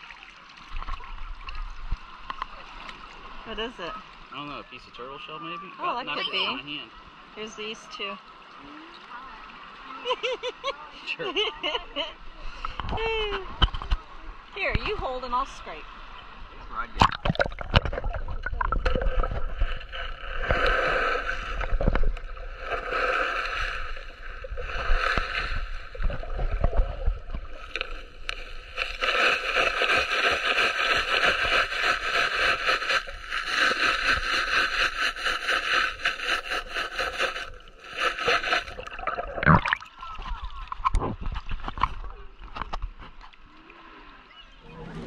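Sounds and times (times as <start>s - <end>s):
water sloshing: 12.6s - 45.0s.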